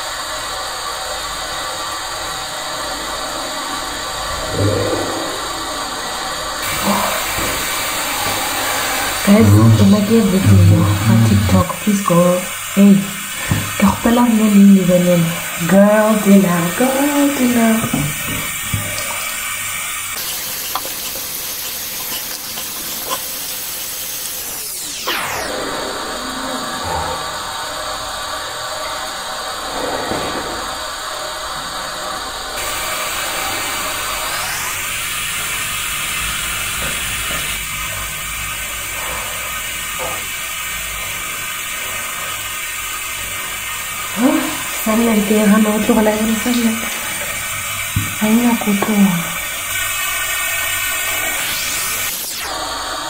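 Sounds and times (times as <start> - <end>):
steady hiss: 0.0 - 25.0
tap water running into sink: 6.6 - 24.6, 34.9 - 52.2.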